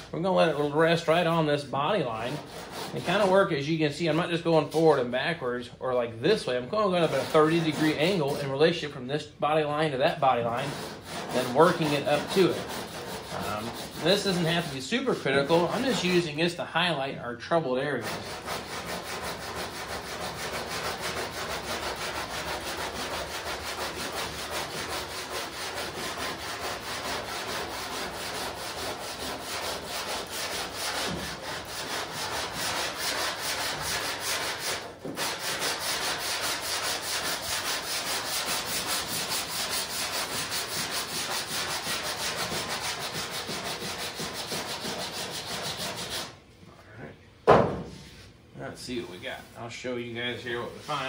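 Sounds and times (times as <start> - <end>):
sanding block on metal: 2.1 - 3.5, 4.1 - 4.8, 6.9 - 8.6, 10.3 - 16.3, 18.0 - 46.4.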